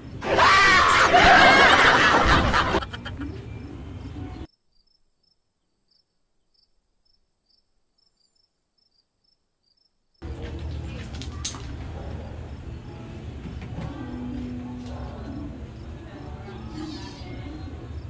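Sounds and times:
person shouting excitedly: 0.2s - 1.2s.

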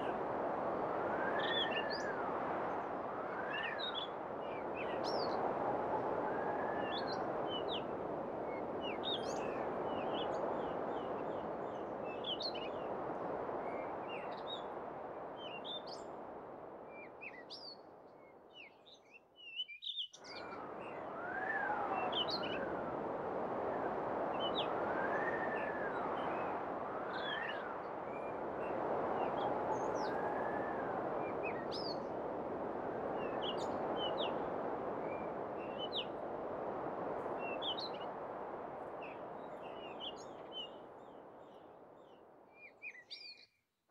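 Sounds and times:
wind noise: 0.0s - 18.0s, 20.3s - 42.4s.

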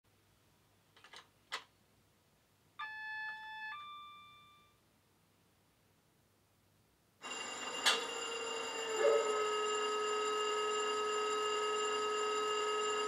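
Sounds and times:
two-part electronic chime: 2.8s - 4.7s
loud steady locomotive whirr: 7.2s - 13.0s
clicks: 7.8s - 8.1s.

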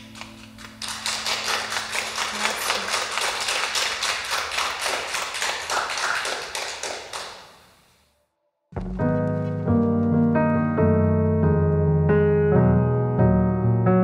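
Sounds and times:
people clapping: 0.0s - 7.9s.

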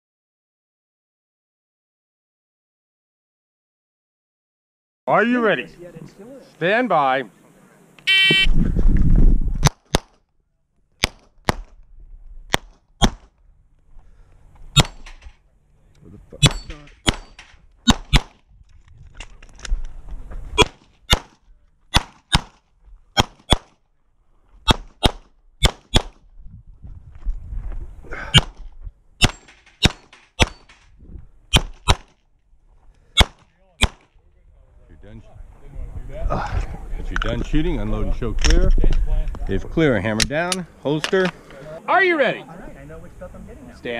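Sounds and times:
pistol shots: 16.4s - 18.4s, 20.6s - 22.6s, 23.2s - 23.8s, 24.7s - 26.2s, 29.2s - 30.8s, 31.5s - 32.2s, 33.2s - 34.1s.

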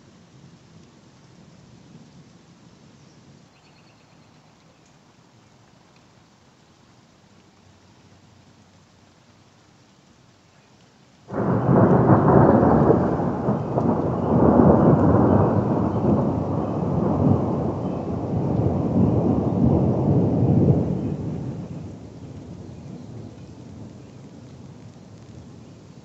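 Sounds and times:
thunder rumbling: 11.3s - 26.0s.

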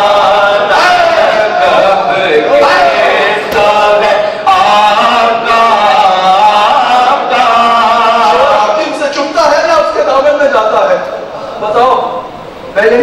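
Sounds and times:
men chanting through microphone: 0.0s - 10.2s.

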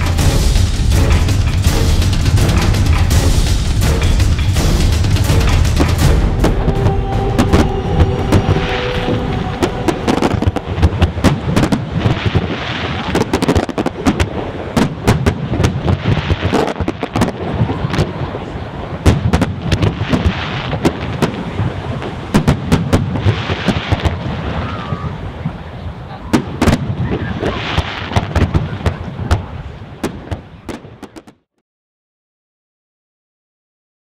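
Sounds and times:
continuous rumble: 0.0s - 12.3s
fireworks bangs and crackles: 0.0s - 31.5s.

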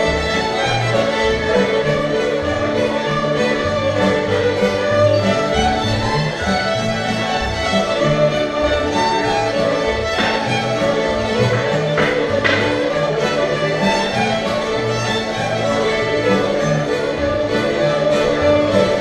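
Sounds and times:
fiddles playing in unison: 0.0s - 19.0s.

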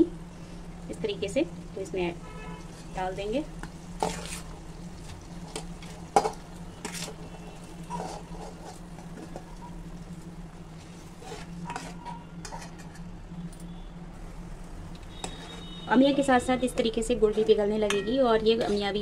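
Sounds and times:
spoon scraping a steel plate: 6.2s - 8.8s, 11.2s - 13.1s, 15.1s - 18.9s.

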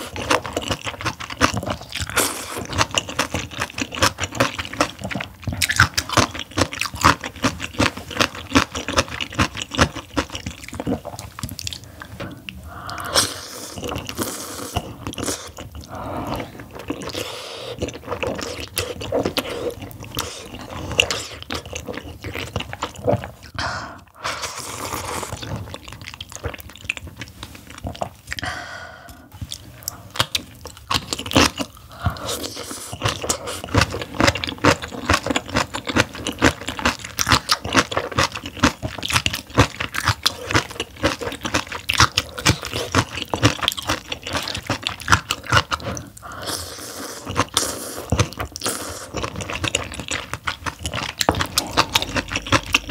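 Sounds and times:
crunchy chewing: 0.0s - 23.6s, 29.4s - 52.9s
wet chewing: 0.0s - 52.9s
slurping noodles: 10.2s - 25.8s, 44.3s - 52.9s.

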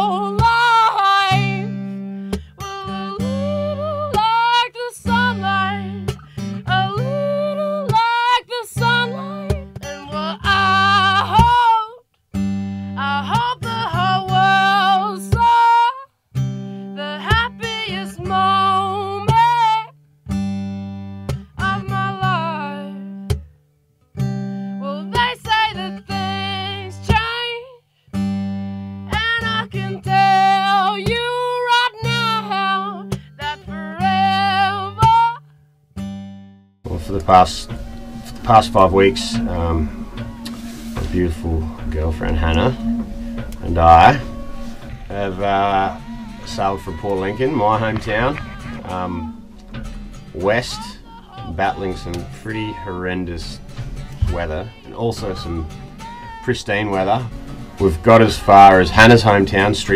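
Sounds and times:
acoustic guitar: 0.0s - 59.9s
person singing: 6.6s - 12.0s, 36.9s - 49.5s, 50.4s - 59.9s.

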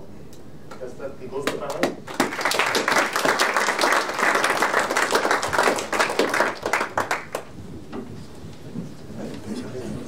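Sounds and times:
audience applauding: 2.0s - 7.5s.

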